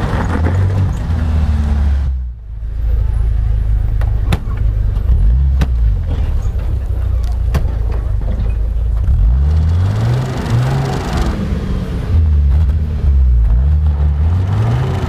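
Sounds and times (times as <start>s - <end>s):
engine revving under load: 3.4s - 6.6s, 7.4s - 15.0s.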